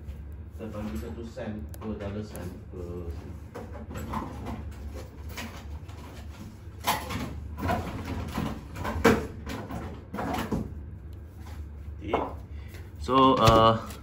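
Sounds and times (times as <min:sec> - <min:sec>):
objects knocking and clattering: 0:03.5 - 0:10.7.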